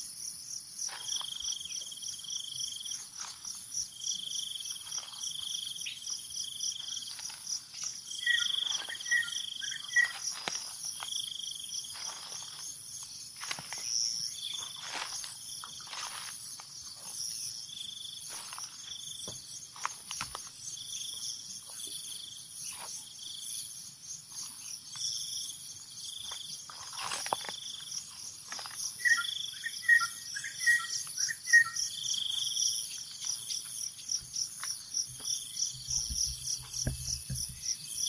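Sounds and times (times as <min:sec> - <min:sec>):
insects trilling: 0:00.0 - 0:38.0
footsteps in dry leaves: 0:06.8 - 0:11.1, 0:11.8 - 0:12.7, 0:13.4 - 0:16.5, 0:26.7 - 0:27.6.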